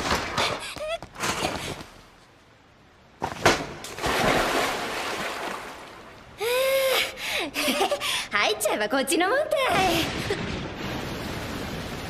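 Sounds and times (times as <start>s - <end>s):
bath water splashing: 3.9s - 6.2s.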